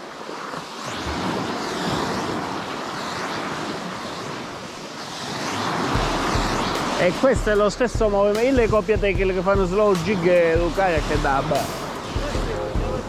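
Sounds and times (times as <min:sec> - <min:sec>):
small waves breaking on beach: 0:00.0 - 0:07.4, 0:09.8 - 0:12.6
wind on microphone: 0:00.0 - 0:13.0.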